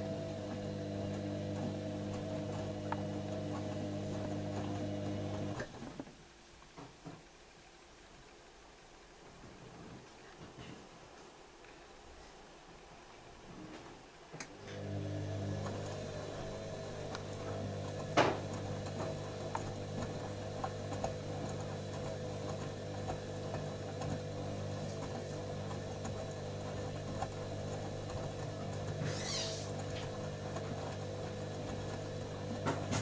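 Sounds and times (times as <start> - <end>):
washing machine drum motor hum: 0.0 - 6.0, 14.4 - 33.0.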